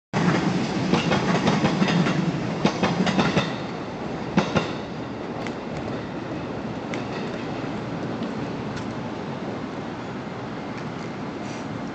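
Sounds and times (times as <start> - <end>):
train wheels clattering over rails: 0.2 - 7.7.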